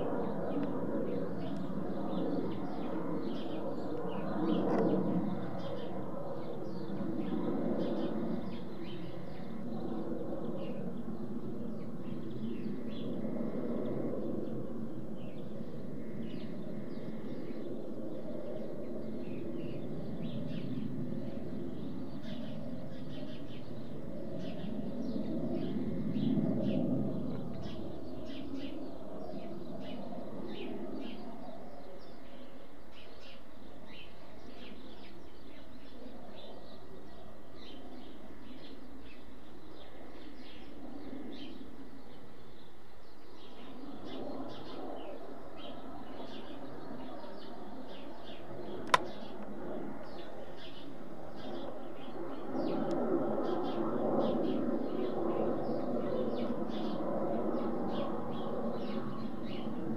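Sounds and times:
distant jet aircraft rumbling: 0:00.0 - 0:31.6, 0:43.7 - 0:59.9
small birds chirping: 0:18.5 - 0:59.9.

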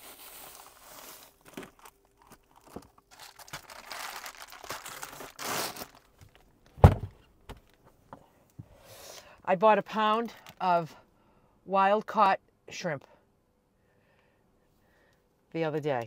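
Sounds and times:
plastic bag crinkling: 0:00.0 - 0:06.7, 0:10.2 - 0:10.6
loud thump: 0:06.8 - 0:07.2.

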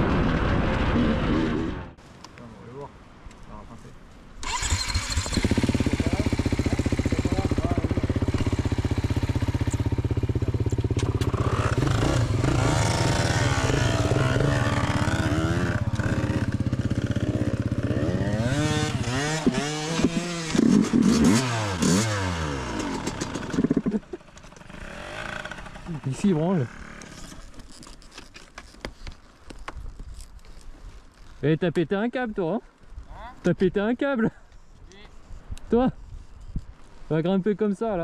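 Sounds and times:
dirt bike engine revving: 0:04.4 - 0:27.5.

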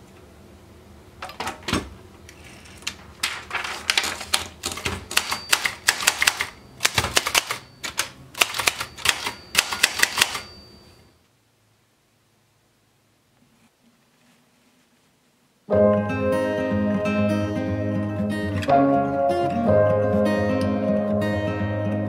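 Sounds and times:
typewriter keys clicking: 0:03.2 - 0:10.5.

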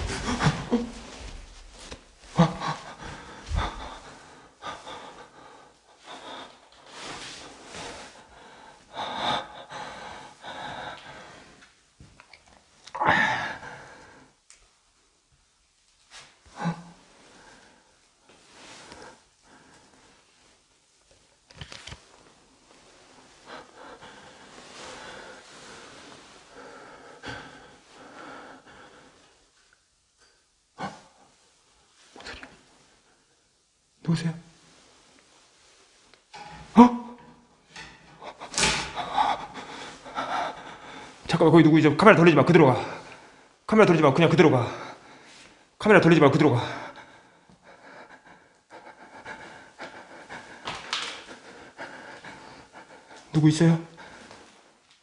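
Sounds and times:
person breathing close to microphone: 0:00.0 - 0:11.7, 0:22.7 - 0:29.5, 0:37.2 - 0:41.4, 0:46.6 - 0:54.8.

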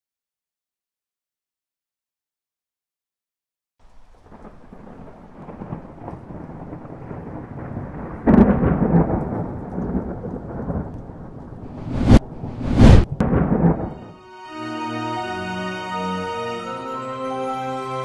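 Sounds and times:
rain: 0:03.8 - 0:14.2
low rumble of thunder: 0:04.2 - 0:14.0
loud thunderclap: 0:04.3 - 0:14.1.

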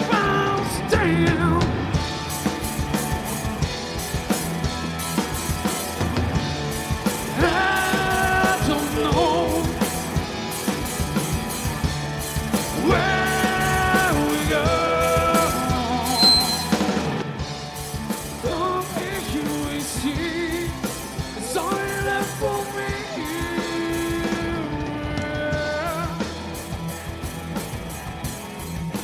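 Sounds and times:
drum kit: 0:00.0 - 0:29.0
electric guitars: 0:00.0 - 0:29.0.

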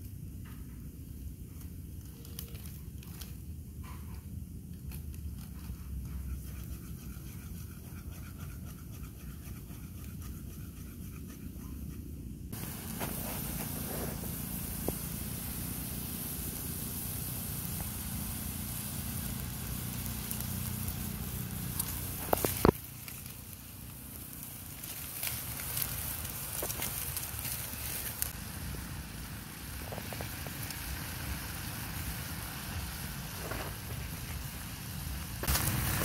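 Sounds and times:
wood fire crackling: 0:01.8 - 0:03.5, 0:12.5 - 0:36.0
oil sizzling in a wok: 0:12.5 - 0:36.0.

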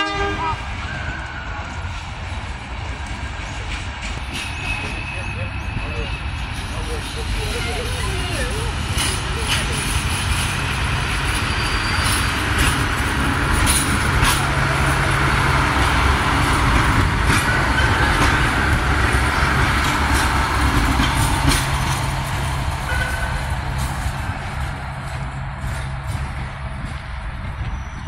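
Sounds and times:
diesel railcar engine rumble: 0:00.0 - 0:28.0
wheels clicking over rail joints: 0:06.6 - 0:27.6.

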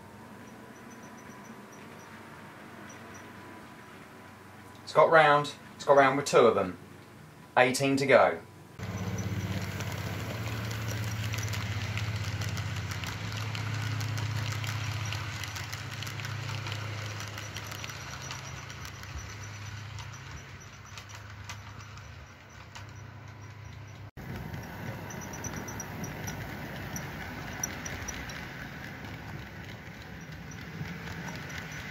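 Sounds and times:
wheels clicking over track: 0:00.0 - 0:06.2, 0:08.8 - 0:31.9
model train motor humming: 0:08.8 - 0:31.9.

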